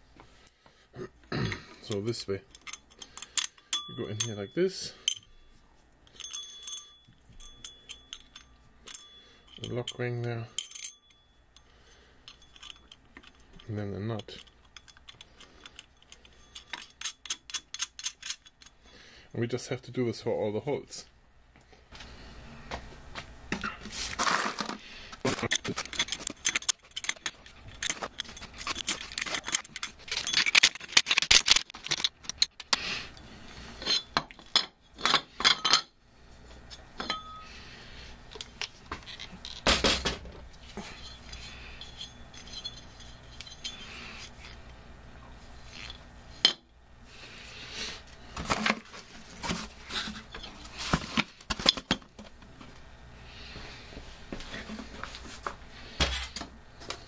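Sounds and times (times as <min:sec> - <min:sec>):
metal bolts and nuts clinking: 0:01.8 - 0:18.9, 0:25.3 - 0:32.8, 0:33.8 - 0:35.9, 0:38.4 - 0:44.6.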